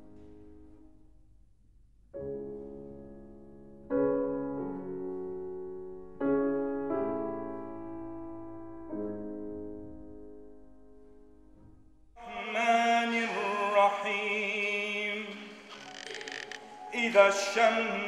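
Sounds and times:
slow solo piano chords: 0.0 - 1.0, 2.2 - 12.1.

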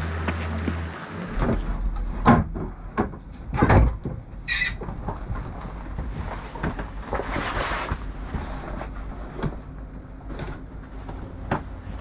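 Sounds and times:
low rumble: 0.0 - 12.0
knocks and clicks on sailboat: 0.2 - 8.6.

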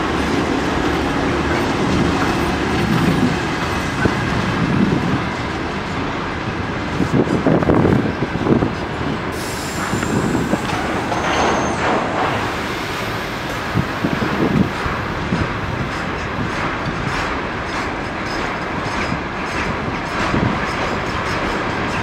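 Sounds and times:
freight train rumbling past: 0.0 - 22.0
wheels clacking over rail joints: 0.1 - 22.0.

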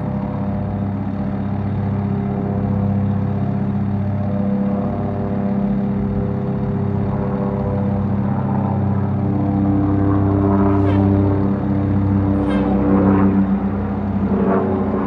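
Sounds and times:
diesel engine idling: 9.9 - 14.4.

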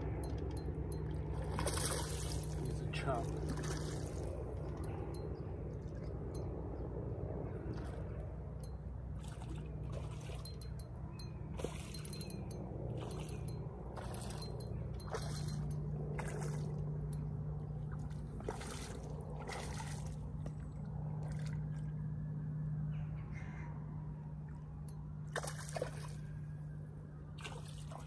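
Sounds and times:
steady low hum: 0.0 - 28.0
crows cawing: 23.2 - 23.7.

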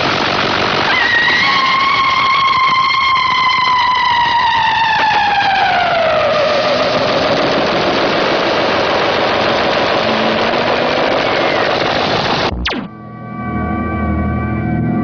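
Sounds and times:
synthesized siren-like tone gliding down: 0.9 - 15.0
dense rushing noise: 5.9 - 12.8.

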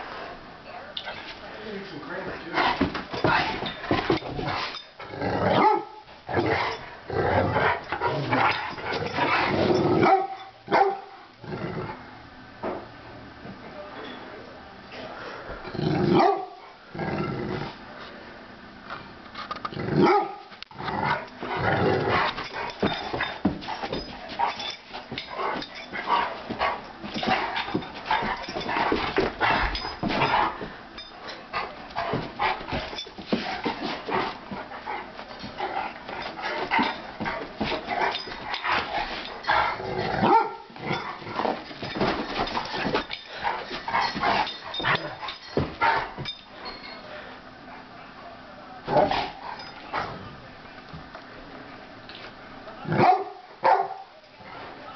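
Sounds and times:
dogs growling: 2.4 - 10.1, 11.4 - 12.2, 15.6 - 17.9, 19.6 - 46.3
dogs barking: 5.5 - 6.1, 10.0 - 11.2, 16.1 - 16.7, 20.0 - 20.5, 39.5 - 41.2, 53.0 - 54.1.

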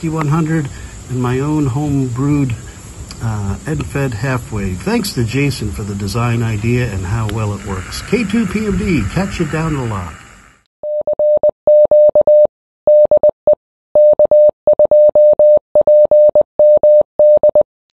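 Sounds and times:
morse code beeps: 10.8 - 17.7.

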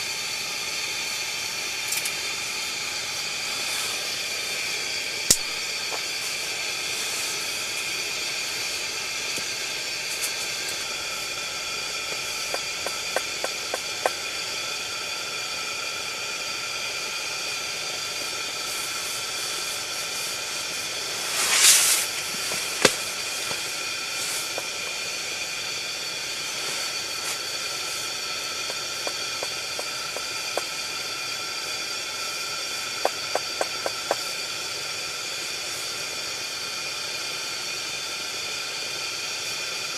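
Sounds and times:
pressure lantern hissing: 0.0 - 39.9
short rush of noise: 21.2 - 23.0.

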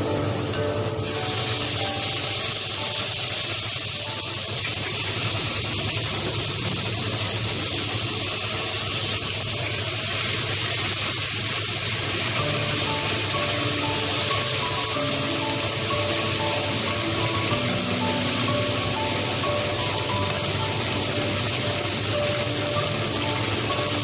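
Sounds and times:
hot oil sizzling in a pot: 0.0 - 24.0.

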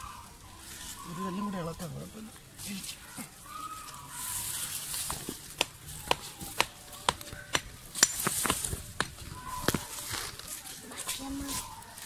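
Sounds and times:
stones being struck: 5.1 - 9.9.

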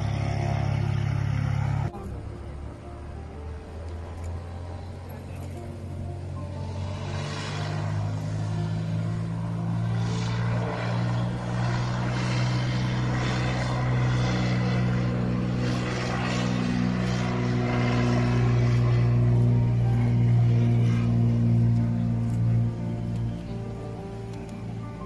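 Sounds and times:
small plane engine droning: 0.0 - 25.0.

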